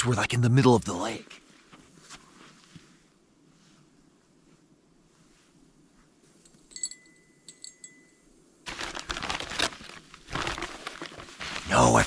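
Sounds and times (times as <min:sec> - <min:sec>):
light clinks: 0:06.4 - 0:08.4
short metallic ring: 0:06.5 - 0:08.3
paper bag rustling: 0:08.7 - 0:12.0.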